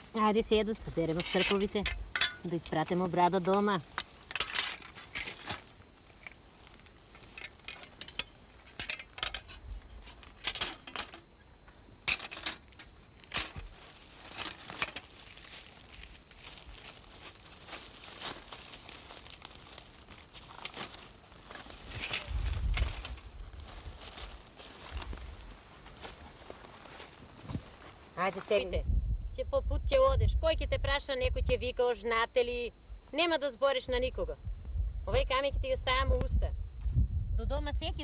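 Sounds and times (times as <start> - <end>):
metal sickles clinking together: 1.2 - 2.5
dry straw rustling and crackling: 12.6 - 28.6.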